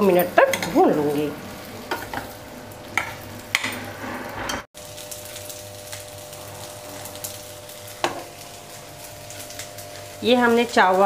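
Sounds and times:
food sizzling in oil: 0.0s - 11.0s
steel spoon scraping a pan: 1.8s - 4.7s.

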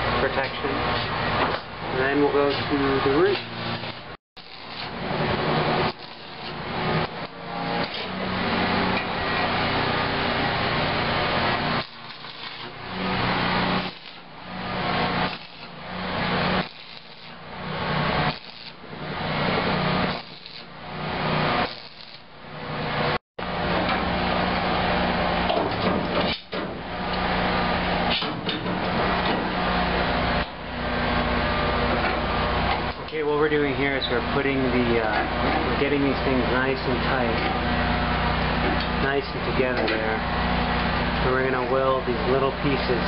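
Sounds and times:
electric arc welding crackle: 1.9s - 23.2s.

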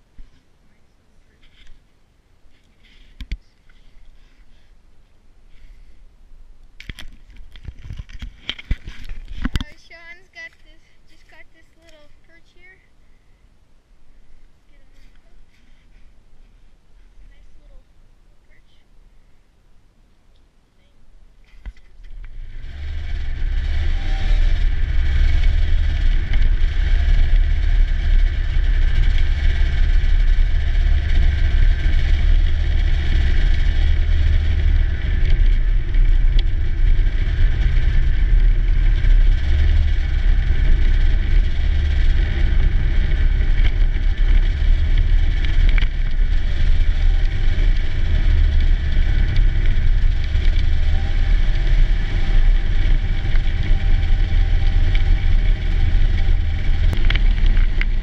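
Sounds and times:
snowmobile engine rumbling: 22.0s - 58.0s.

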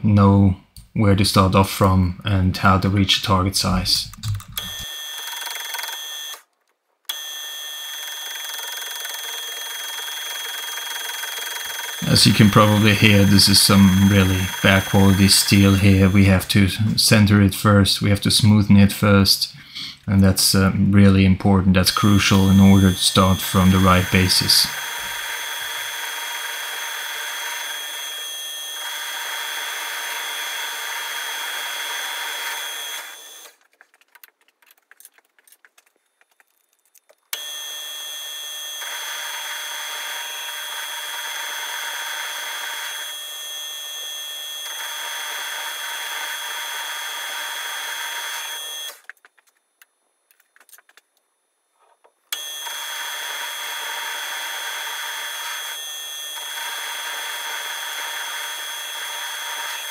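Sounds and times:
metal lathe cutting with whine: 10.3s - 16.2s, 21.9s - 33.5s, 37.4s - 49.0s, 52.4s - 59.9s.

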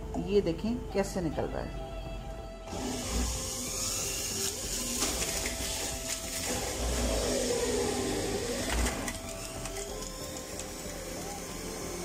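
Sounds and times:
juicer motor whine: 2.7s - 12.0s.

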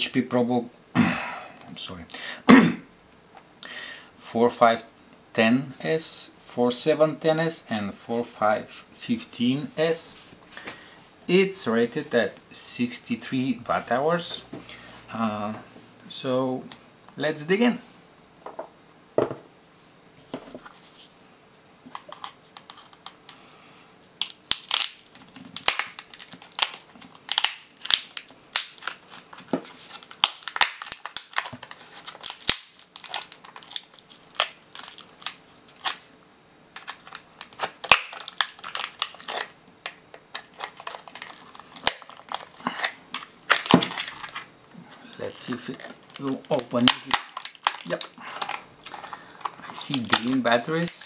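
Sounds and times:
plastic case clicking and cracking: 36.8s - 44.4s, 45.5s - 51.0s.

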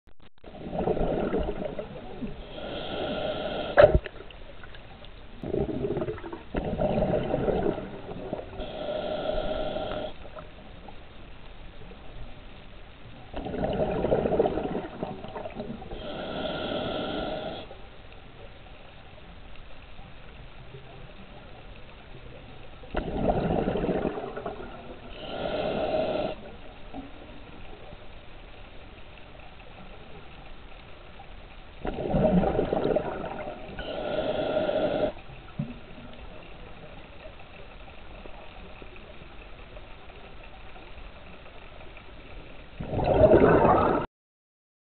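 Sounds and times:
diver breathing underwater: 0.5s - 4.3s, 5.4s - 10.4s, 13.4s - 17.8s, 23.0s - 26.6s, 31.9s - 35.4s.

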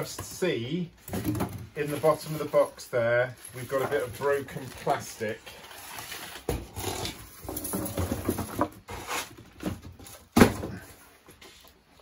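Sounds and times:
plastic wrapping rustling: 1.0s - 9.4s.

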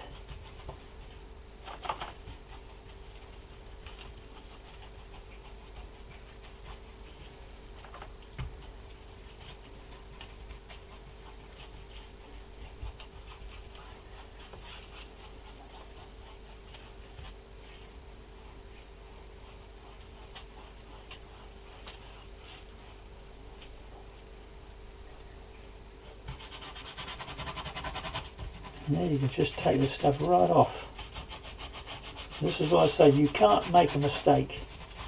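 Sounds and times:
faint hum: 0.0s - 35.0s
paintbrush swishing: 28.7s - 35.0s.

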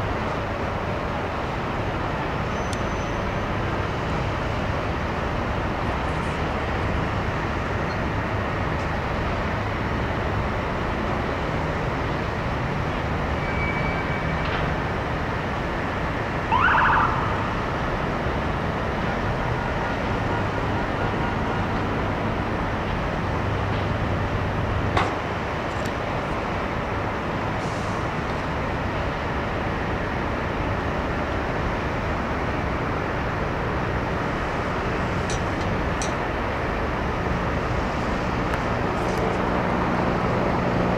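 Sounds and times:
city noise: 0.0s - 40.9s
short siren chirp: 16.5s - 17.4s.

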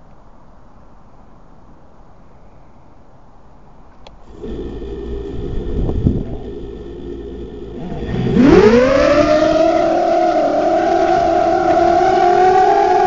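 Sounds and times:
quadcopter motors whining: 4.2s - 13.0s.

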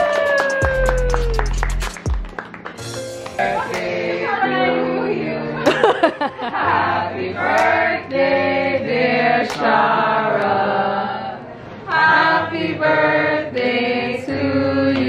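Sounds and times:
choir chanting held notes: 3.4s - 5.6s, 6.6s - 15.0s.

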